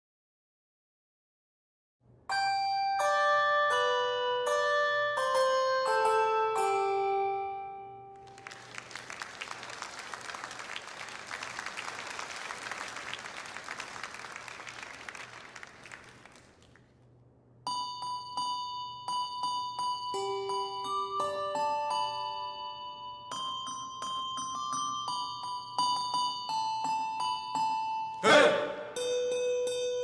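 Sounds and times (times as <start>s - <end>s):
handbells ringing: 17.7s - 28.1s.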